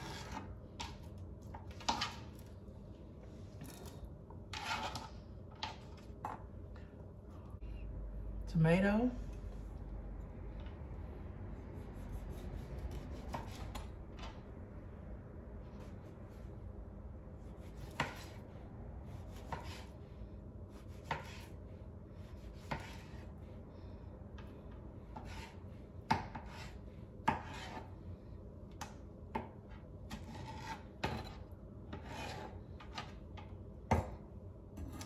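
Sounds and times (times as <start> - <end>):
knife slicing tomatoes: 17.5 - 18.4, 20.7 - 21.6, 22.2 - 23.3.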